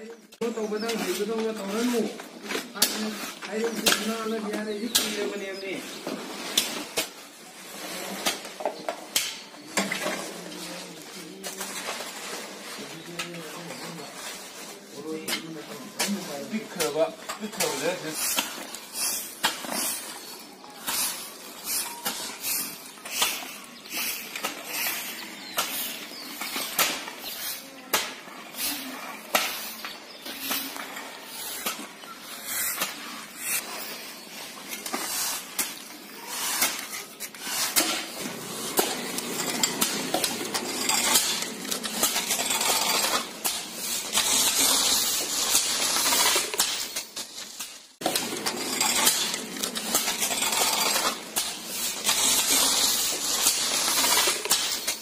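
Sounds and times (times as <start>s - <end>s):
stiff brooms sweeping: 0.4s - 55.0s
metal blade scraping concrete: 15.2s - 55.0s.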